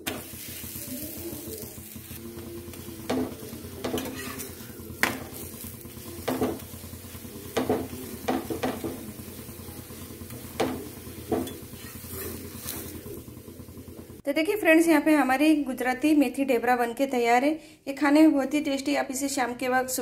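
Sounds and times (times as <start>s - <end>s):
flatbread sizzling in a pan: 0.0s - 14.2s
metal spatula tapping and scraping: 2.4s - 13.0s.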